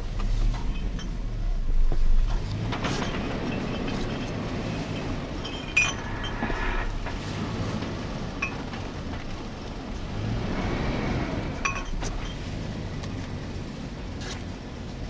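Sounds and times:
off-road vehicle engine running: 0:00.0 - 0:15.0
sharp knocks and clinks: 0:02.3 - 0:07.2.

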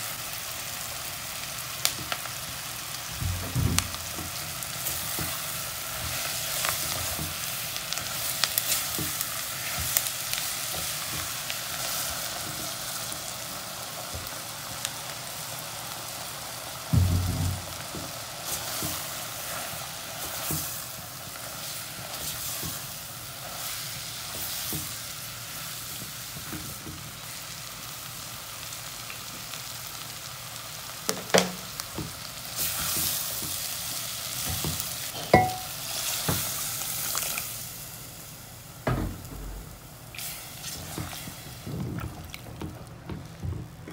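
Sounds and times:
mushrooms sizzling in butter: 0:00.0 - 0:43.9
low thump: 0:16.9 - 0:18.0, 0:38.9 - 0:39.9
sharp knocks: 0:17.0 - 0:18.0.

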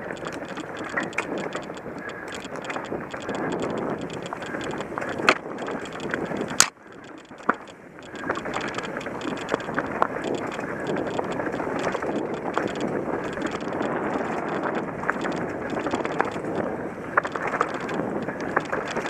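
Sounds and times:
bike tyres on rocky trail: 0:00.0 - 0:19.0
chain and frame rattling: 0:00.0 - 0:19.0
sharp clacks of parts and stones: 0:00.1 - 0:16.5.

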